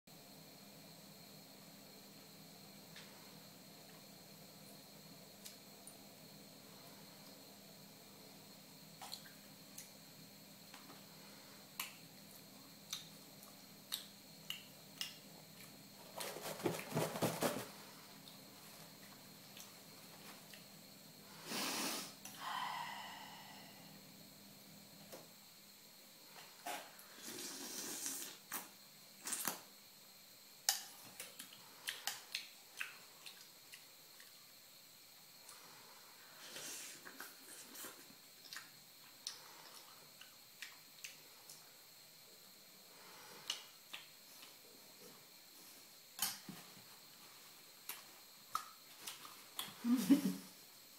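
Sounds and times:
slurp from spoon: 0:27.2 - 0:28.4.

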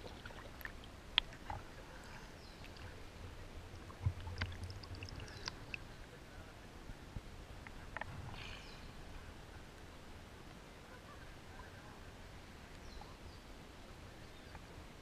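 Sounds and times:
water drips: 0:00.0 - 0:03.0, 0:03.8 - 0:05.8
water lapping and splashing: 0:00.0 - 0:05.9.

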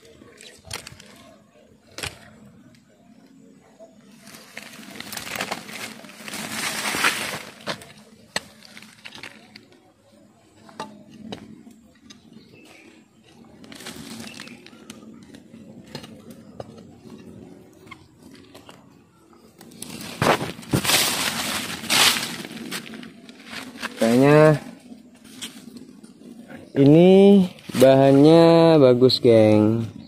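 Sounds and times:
brush rustling: 0:04.1 - 0:09.7, 0:12.7 - 0:15.5, 0:19.7 - 0:25.7
twigs cracking: 0:04.2 - 0:09.9, 0:12.0 - 0:16.7, 0:19.6 - 0:24.3.

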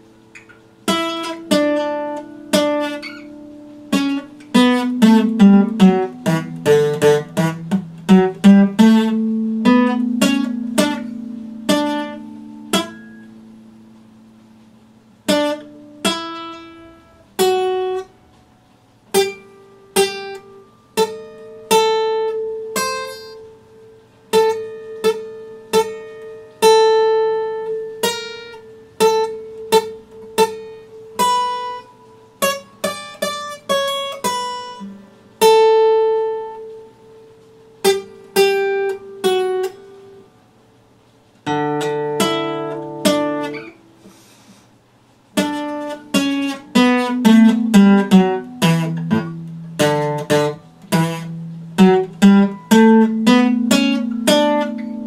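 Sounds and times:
acoustic guitar chord: 0:00.0 - 0:55.0
acoustic guitar plucked notes: 0:00.0 - 0:55.0.

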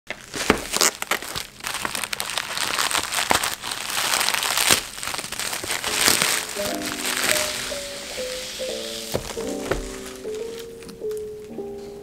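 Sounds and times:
plastic mailer bag crinkling: 0:00.1 - 0:10.9.

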